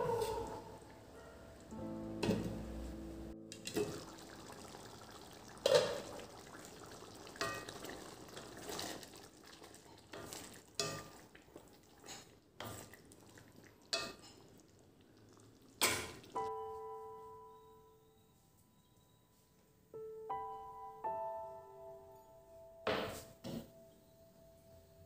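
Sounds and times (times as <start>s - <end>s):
curry bubbling: 3.6s - 16.5s.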